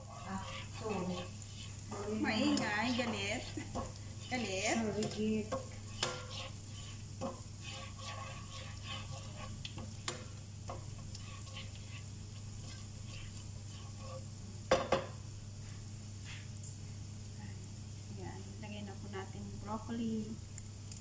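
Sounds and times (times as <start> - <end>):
vegetables sizzling in butter: 0.0 - 15.4
steady low hum: 0.0 - 21.0.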